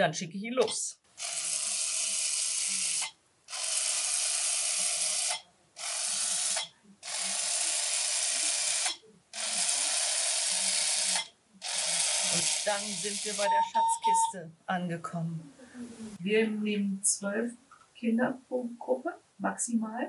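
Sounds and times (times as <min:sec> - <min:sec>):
toy robot motors whirring: 0:01.2 - 0:13.5.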